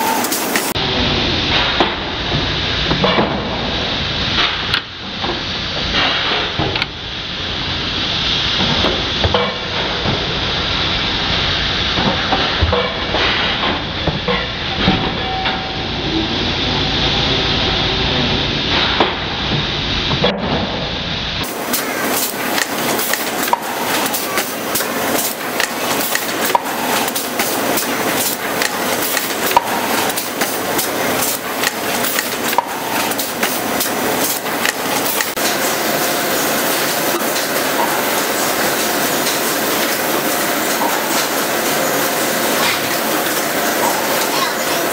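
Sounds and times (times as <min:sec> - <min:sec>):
box making machine clattering: 0:21.4 - 0:35.6.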